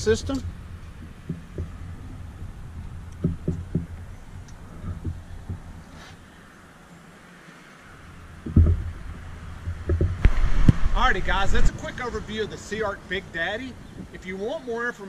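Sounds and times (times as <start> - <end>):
footsteps on metal boat deck: 0.0 - 6.3, 8.4 - 10.3
low steady hum: 0.0 - 14.9.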